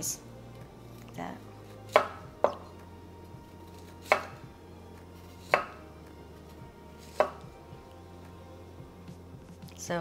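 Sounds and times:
knife chopping on wooden board: 1.9 - 2.8, 3.7 - 4.5, 5.2 - 5.8, 7.0 - 7.5.

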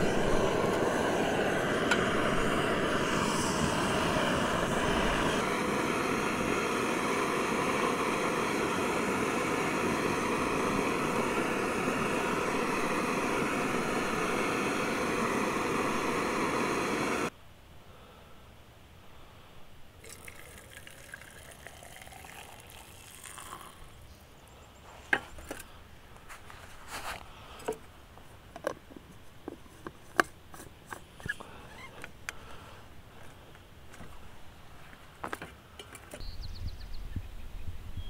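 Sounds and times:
water pouring into thermos: 20.0 - 24.0.

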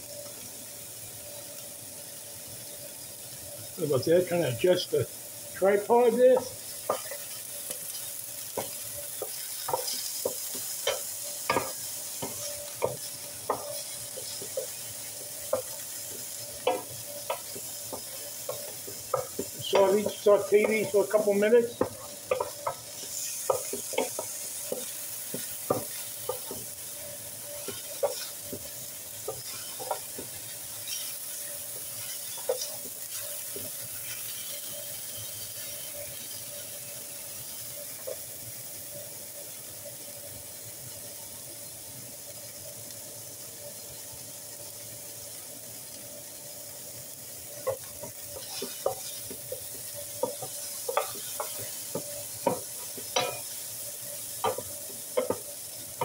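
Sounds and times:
vegetables sizzling in a skillet: 0.0 - 56.0
wooden spoon scraping and tapping pan: 5.7 - 38.4, 47.5 - 56.0.

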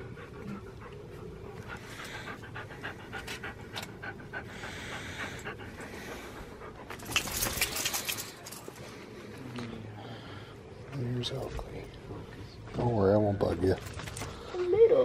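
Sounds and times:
dog panting: 0.0 - 8.8.

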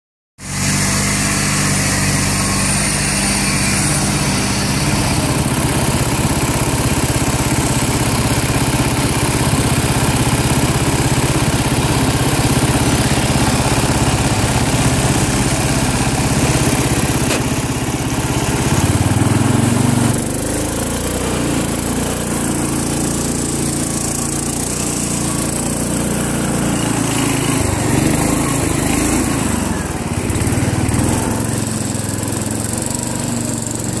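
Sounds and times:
garden tractor engine running: 0.4 - 34.0.

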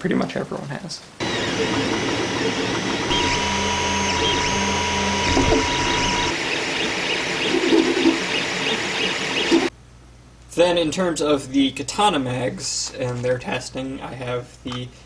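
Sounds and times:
cooling fans whirring: 1.1 - 12.4
high steady tone: 1.2 - 6.4
stepper motors whining: 1.2 - 9.7.

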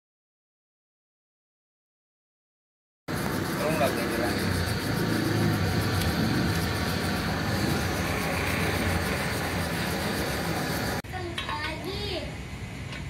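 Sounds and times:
gas torch hissing: 3.1 - 13.0.

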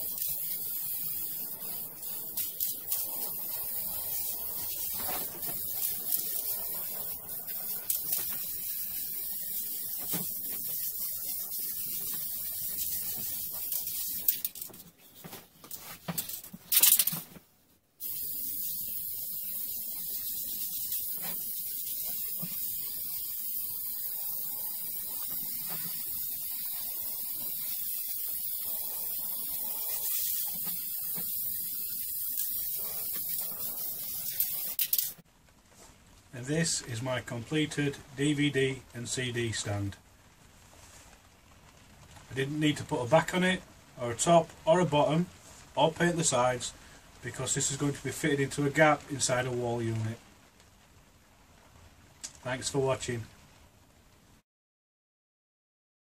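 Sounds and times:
aerosol spray can hissing: 0.0 - 17.3, 18.0 - 35.2.

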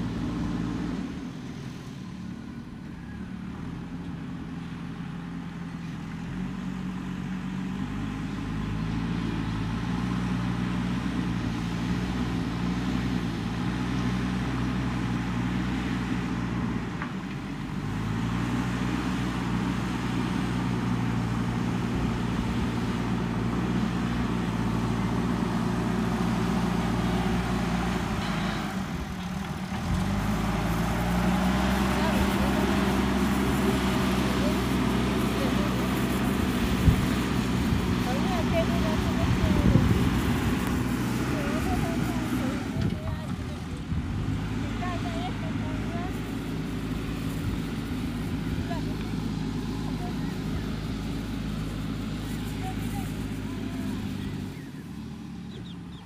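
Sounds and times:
backhoe loader diesel engine running: 0.0 - 56.0.

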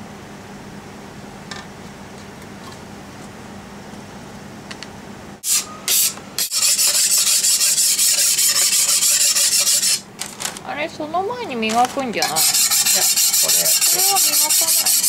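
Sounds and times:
abrasive block rubbing glass: 5.9 - 10.0, 12.2 - 15.0.

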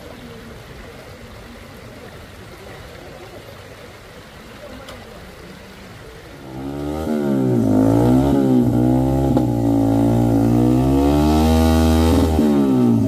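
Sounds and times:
motorcycle engine revving: 6.4 - 13.0.

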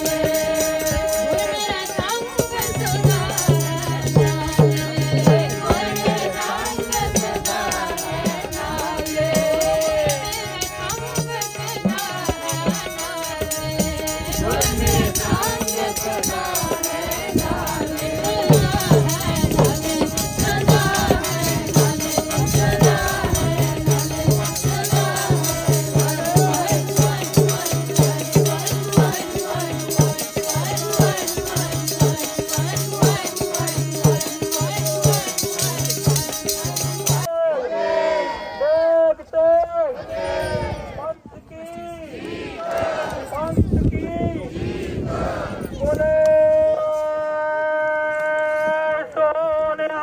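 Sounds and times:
sharp percussion strokes: 0.0 - 37.3
group devotional singing: 0.0 - 39.0, 42.0 - 43.5, 44.3 - 47.8.

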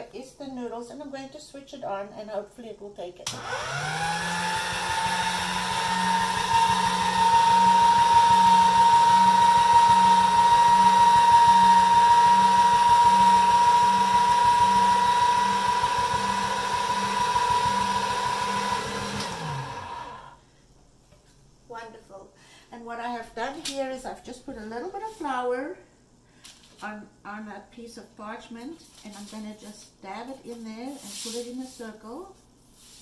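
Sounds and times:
pasta machine motor whine: 3.3 - 20.4.

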